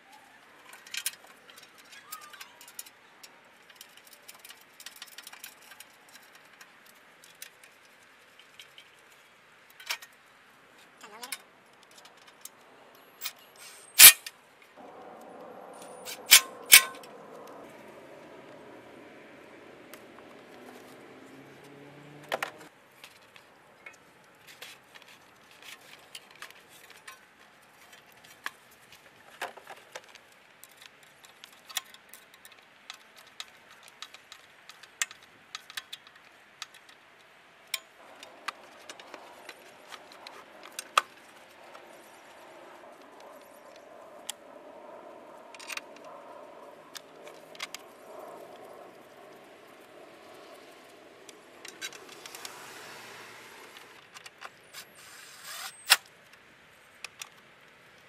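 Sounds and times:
metal and plastic parts clinking: 14.0s - 14.3s, 16.0s - 17.1s.

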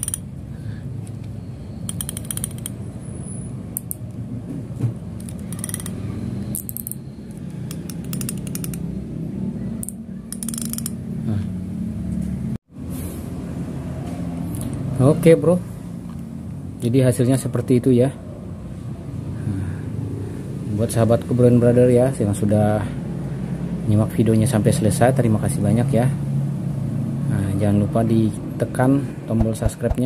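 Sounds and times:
fishing reel drag clicking: 9.8s - 11.0s.

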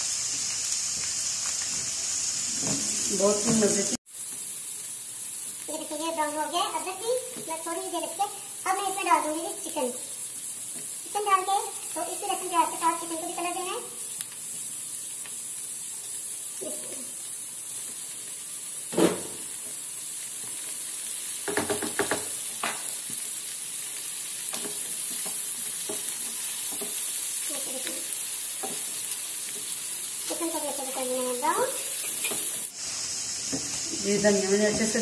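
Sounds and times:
food sizzling in hot oil: 0.0s - 35.0s.

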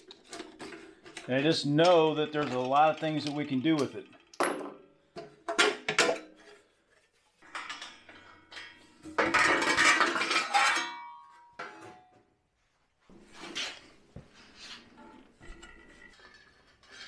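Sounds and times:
sheet metal clanking and rattling: 9.0s - 11.8s.

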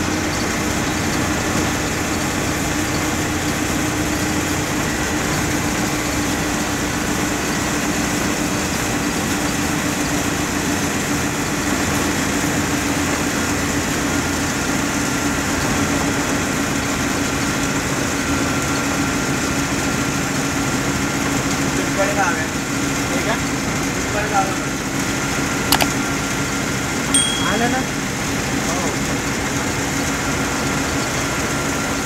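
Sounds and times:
low steady hum: 27.2s - 28.0s.

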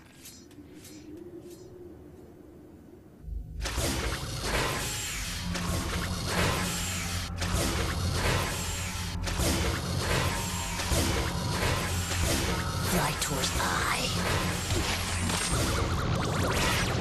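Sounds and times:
sci-fi machine effects: 3.2s - 17.0s
dramatic cartoon music: 3.6s - 17.0s.

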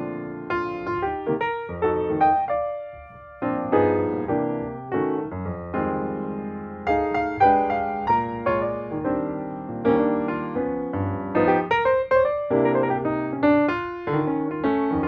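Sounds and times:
piano melody: 0.0s - 15.0s.

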